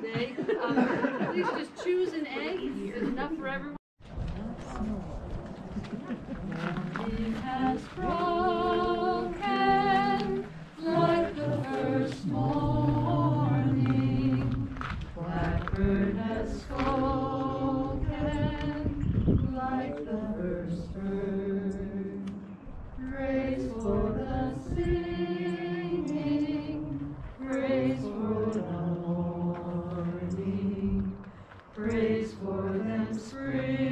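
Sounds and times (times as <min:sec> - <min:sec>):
person singing unaccompanied: 0:06.6 - 0:31.2.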